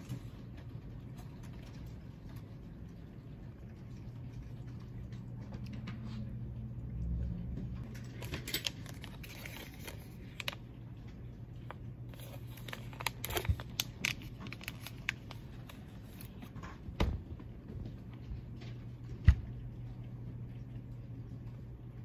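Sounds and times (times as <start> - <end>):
plastic packet crinkling: 7.9 - 16.6.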